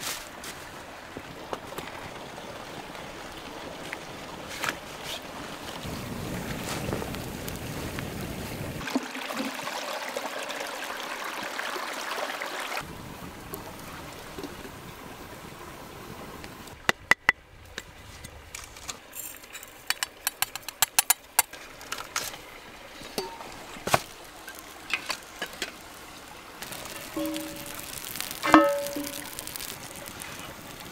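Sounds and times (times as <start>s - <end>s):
stream rushing: 0.0s - 17.3s, 21.2s - 30.9s
metal percolator parts clinking: 26.9s - 29.4s.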